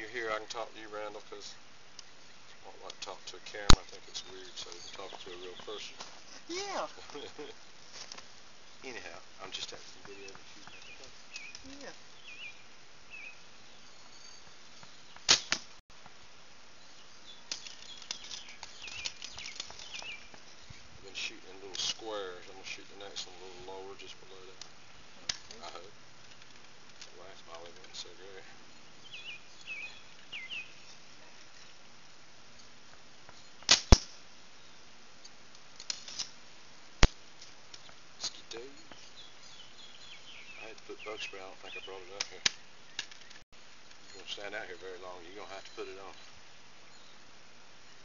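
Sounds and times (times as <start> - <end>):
faint bird chirps: 0.9 - 7.7, 10.0 - 15.2, 16.7 - 21.4, 27.2 - 31.8, 37.8 - 48.0
arrow striking target: 15.2 - 15.7, 33.7 - 34.2
bowstring snapping: 15.2 - 15.7, 33.7 - 34.2.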